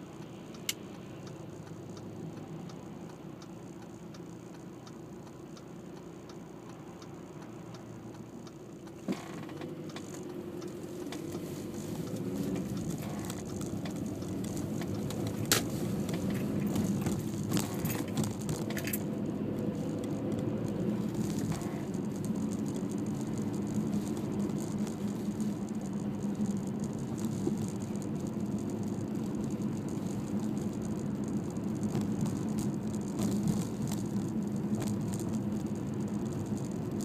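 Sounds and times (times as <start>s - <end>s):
car engine hum: 0.0s - 37.0s
road noise: 0.0s - 37.0s
turn signal ticking: 0.0s - 37.0s
small rattles: 9.0s - 37.0s.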